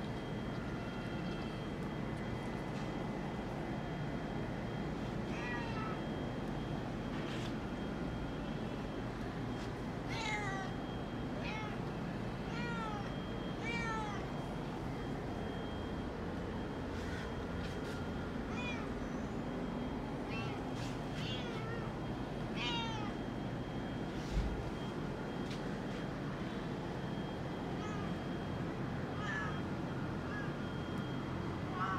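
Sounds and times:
cat meowing: 0:05.3 - 0:06.0, 0:10.1 - 0:10.8, 0:11.4 - 0:11.8, 0:12.5 - 0:14.3, 0:18.5 - 0:19.2, 0:21.2 - 0:23.2, 0:27.8 - 0:28.2, 0:29.2 - 0:29.6.

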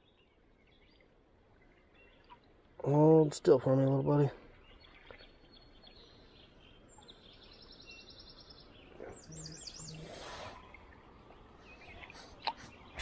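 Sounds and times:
songbirds singing: 0:00.0 - 0:13.0
light splash: 0:04.3 - 0:06.0.

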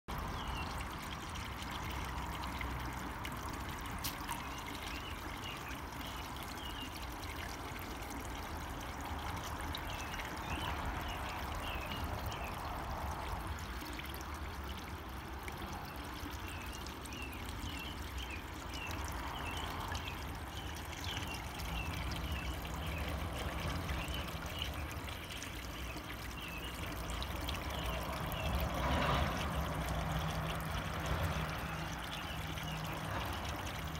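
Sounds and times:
water trickling into a pond: 0:00.1 - 0:33.9.

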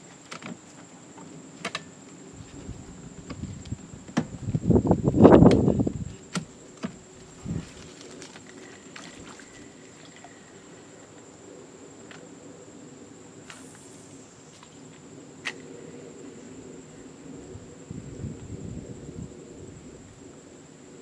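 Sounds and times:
high-pitched whine: 0:08.7 - 0:19.3.

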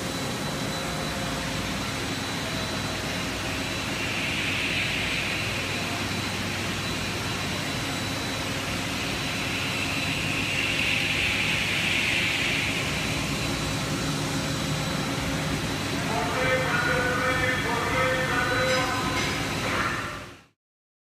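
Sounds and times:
industrial machinery hum and hiss: 0:00.0 - 0:20.6
thin high whine: 0:00.0 - 0:20.6.

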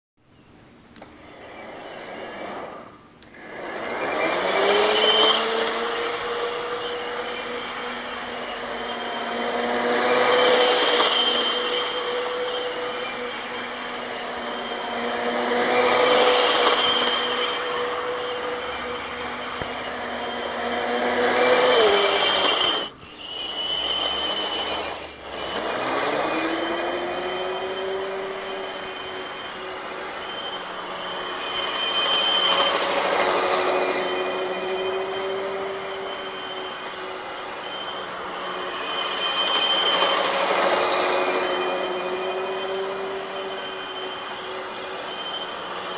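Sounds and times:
model train motor whining: 0:01.0 - 0:45.9
wheels rattling on rails: 0:01.0 - 0:45.9.

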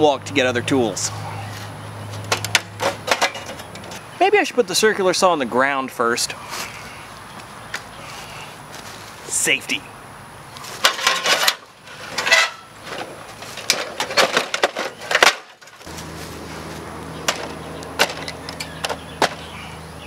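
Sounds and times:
shovel scraping sheet metal: 0:10.8 - 0:16.0
steady low hum: 0:15.8 - 0:20.0.

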